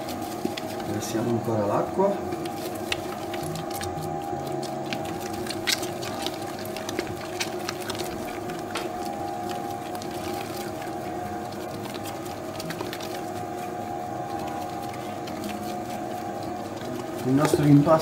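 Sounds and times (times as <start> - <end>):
dough mixer humming: 0.0 - 18.0.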